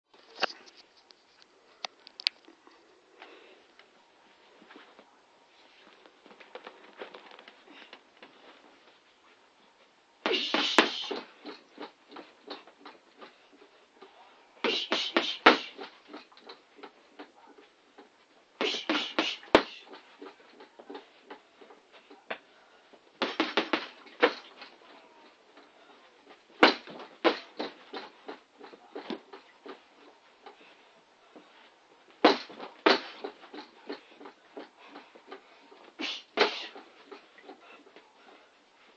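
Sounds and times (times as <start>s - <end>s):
gloved strikes on punching bag: 23.2s - 24.4s, 26.6s - 27.8s, 32.2s - 33.2s.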